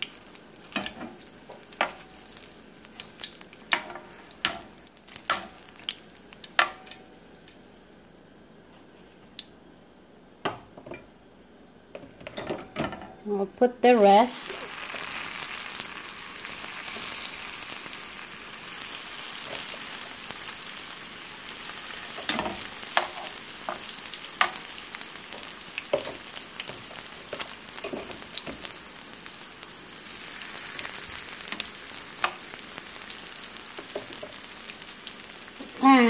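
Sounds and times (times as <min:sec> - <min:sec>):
food sizzling in hot oil: 0:00.0 - 0:09.5, 0:10.4 - 0:36.0.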